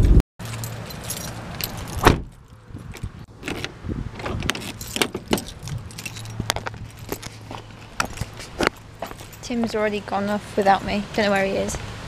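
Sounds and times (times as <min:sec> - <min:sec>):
car keys jangling: 0:00.4 - 0:09.6
car door shutting knock: 0:02.0 - 0:02.3.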